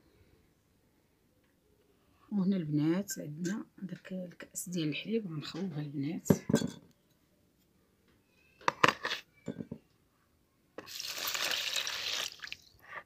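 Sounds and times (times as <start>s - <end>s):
milk pouring and splashing: 10.8s - 12.8s.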